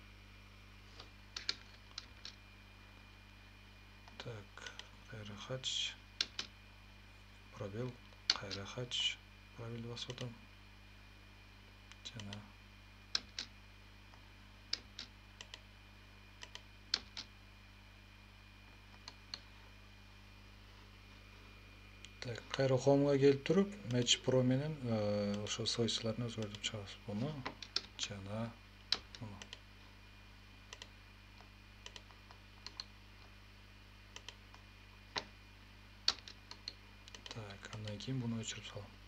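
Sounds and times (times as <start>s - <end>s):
faint steady hum: 0.0s - 39.0s
computer mouse clicks: 1.0s - 2.4s, 6.2s - 6.5s, 11.9s - 12.4s, 13.1s - 13.5s, 14.7s - 15.6s, 16.4s - 17.3s, 18.9s - 19.5s, 26.4s - 26.6s, 27.4s - 28.0s, 30.7s - 32.9s, 34.1s - 35.3s, 36.1s - 37.9s
mouse and keyboard clicks: 1.0s - 2.4s, 31.8s - 32.9s.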